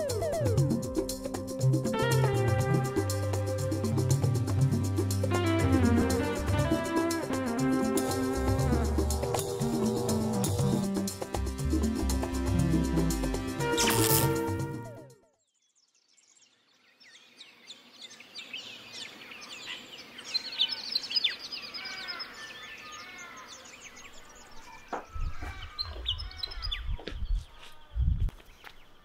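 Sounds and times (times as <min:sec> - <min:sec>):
songbirds chirping: 0:15.3 - 0:29.0.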